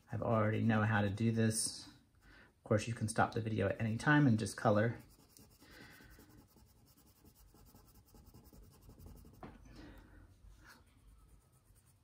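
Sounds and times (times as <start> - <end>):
crayon scratching on paper: 5.0 - 9.5, 11.0 - 12.0.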